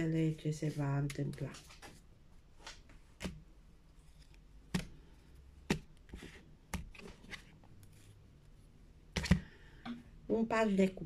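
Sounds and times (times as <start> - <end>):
cards rustling: 2.6 - 8.2
cards clicking and tapping: 4.2 - 7.4, 9.2 - 9.9.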